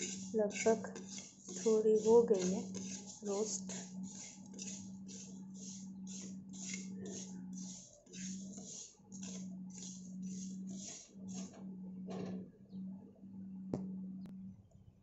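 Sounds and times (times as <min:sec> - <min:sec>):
metal spoon stirring grains in a pan: 0:00.0 - 0:11.6.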